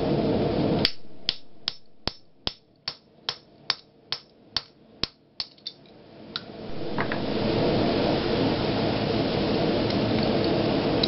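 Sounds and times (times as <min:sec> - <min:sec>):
hammer striking metal: 0:00.8 - 0:05.6.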